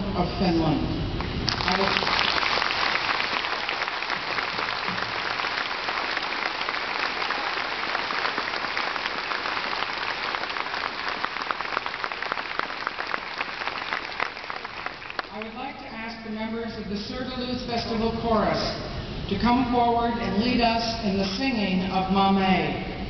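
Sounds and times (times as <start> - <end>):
audience applause: 1.5 - 15.5.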